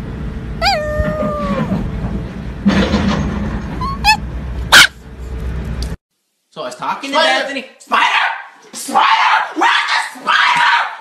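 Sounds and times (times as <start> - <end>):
dog yipping: 0.6 - 1.8, 3.8 - 5.0
small dog whining: 0.6 - 1.9, 3.8 - 4.9
dog barking sharply: 4.7 - 5.0, 8.0 - 11.0.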